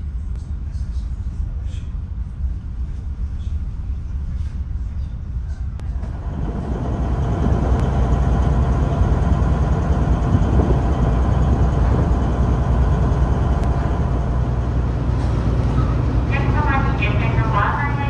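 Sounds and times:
heavy diesel engine rumbling: 5.8 - 18.0.

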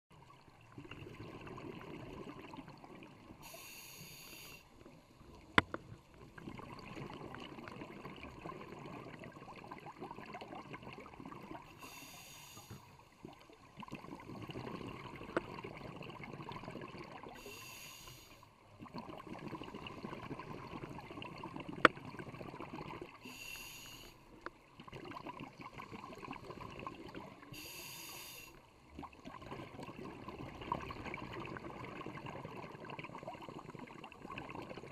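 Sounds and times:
regulator inhalation hiss: 3.4 - 4.7, 11.8 - 13.0, 17.4 - 18.4, 23.2 - 24.2, 27.5 - 28.6.

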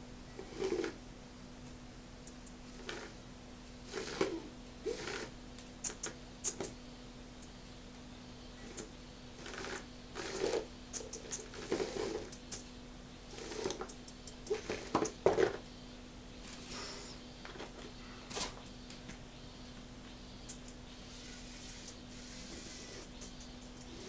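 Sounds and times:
toy crawler scraping and knocking: 11.5 - 12.3.

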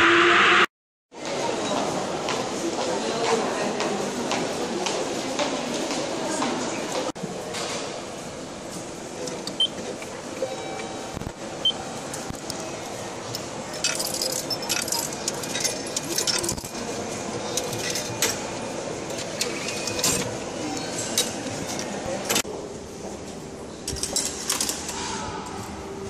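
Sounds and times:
coins clinking into machine: 13.7 - 18.5.

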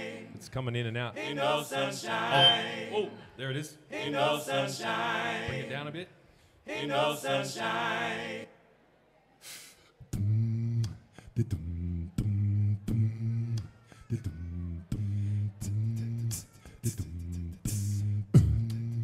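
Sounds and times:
hissy hi-hat-like mouth sounds: 9.4 - 19.0
beatboxing vocal bass: 10.0 - 19.0.

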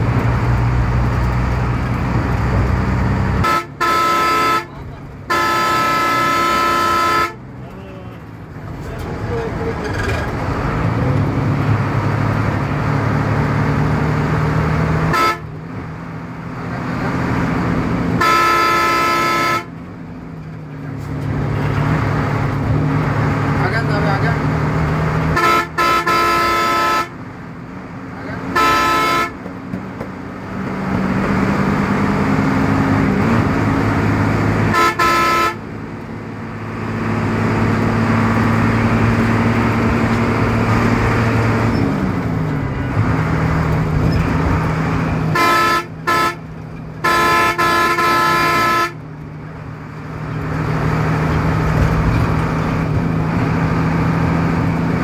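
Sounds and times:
vehicle horn honking: 3.4 - 7.4, 15.1 - 15.5, 18.2 - 19.7, 25.4 - 27.2, 28.5 - 29.4, 34.7 - 35.6, 45.3 - 49.0.

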